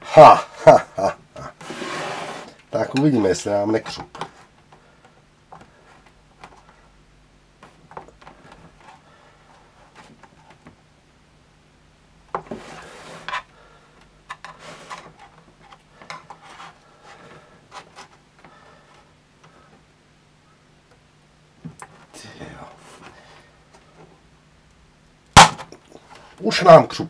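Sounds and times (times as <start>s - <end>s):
knife scraping plastic: 1.6s - 3.2s, 12.4s - 13.5s, 14.3s - 18.2s.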